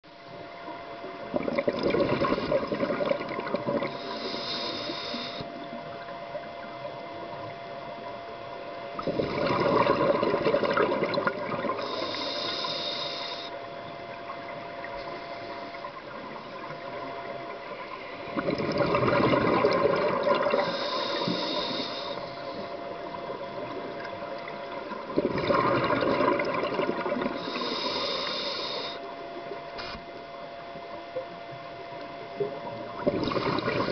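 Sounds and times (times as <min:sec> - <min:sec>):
faint steady hum: 0:00.0 - 0:33.9
exhaled bubbles gurgling: 0:00.3 - 0:33.9
regulator hiss on inhale: 0:03.7 - 0:05.9, 0:11.6 - 0:14.0, 0:14.9 - 0:18.4, 0:20.4 - 0:23.9, 0:27.3 - 0:30.2.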